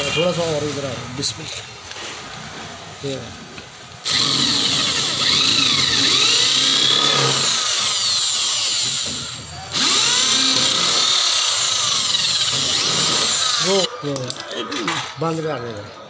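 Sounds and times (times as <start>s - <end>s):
electric drill against metal: 4.0s - 13.9s.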